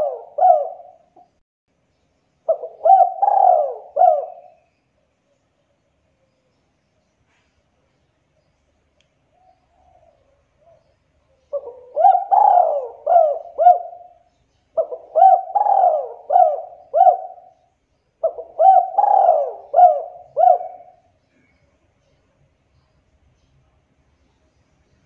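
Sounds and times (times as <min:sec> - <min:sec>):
dove cooing: 0:00.0 - 0:01.3, 0:02.5 - 0:04.6, 0:09.4 - 0:21.1.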